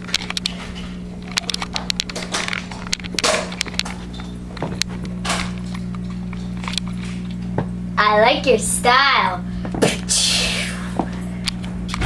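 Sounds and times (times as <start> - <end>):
steady low hum: 0.0 - 12.0
camera handling clicks and rustles: 1.2 - 7.4.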